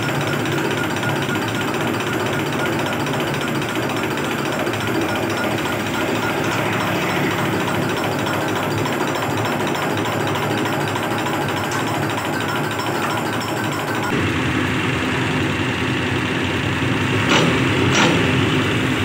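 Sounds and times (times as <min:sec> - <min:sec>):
test bench mechanical rattle: 0:00.0 - 0:14.2.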